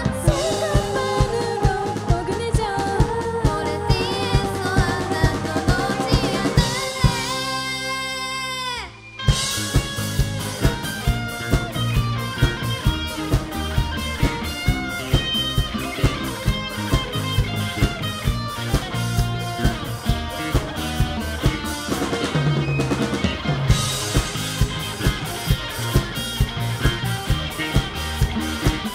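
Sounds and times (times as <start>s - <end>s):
live rock band playing: 0.0s - 28.9s.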